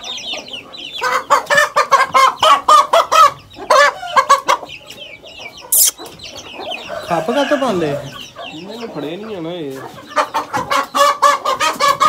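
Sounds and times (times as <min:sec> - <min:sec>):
chicken cackling: 0:00.0 - 0:12.0
faint high peeping: 0:03.4 - 0:09.5.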